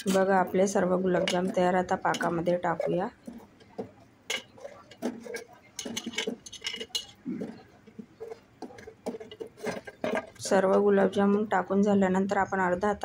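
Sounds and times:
utensil clinking on steel pan: 1.1 - 3.0, 4.3 - 7.2.

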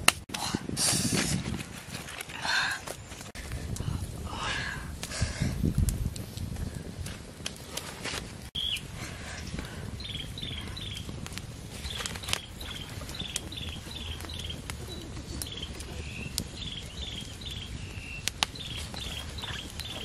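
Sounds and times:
wood fire crackling and popping: 0.0 - 20.0
high chirping call: 8.6 - 8.8.

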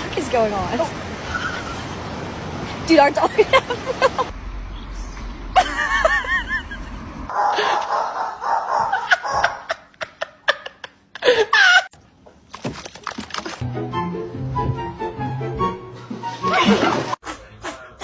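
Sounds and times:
person laughing: 5.6 - 7.0, 8.8 - 12.0.

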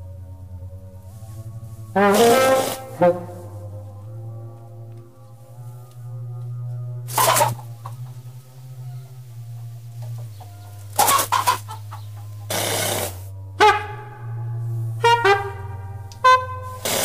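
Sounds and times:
low drone: 0.0 - 17.0
sharp noisy bursts: 2.0 - 3.1, 12.5 - 13.3, 16.6 - 17.0.

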